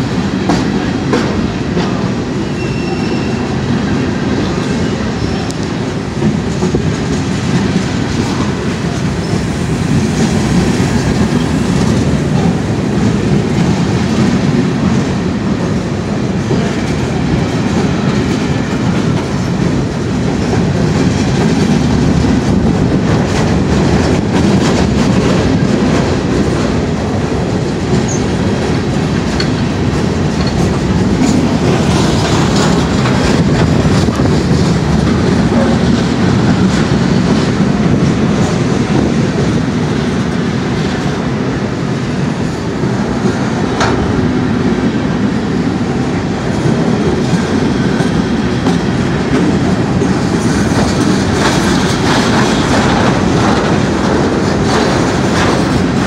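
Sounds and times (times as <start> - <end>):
freight train rumbling rattle: 0.0 - 56.0
wheels clicking over rail joints: 16.4 - 39.6, 46.6 - 56.0.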